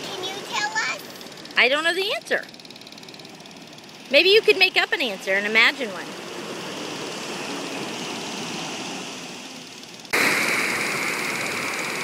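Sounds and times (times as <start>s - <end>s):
ocean surf rushing: 5.9s - 12.0s.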